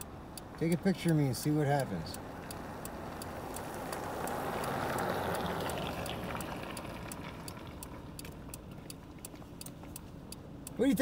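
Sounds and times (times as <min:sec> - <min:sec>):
light steady ticking: 0:00.0 - 0:11.0
passing car tyre hiss: 0:03.3 - 0:06.9.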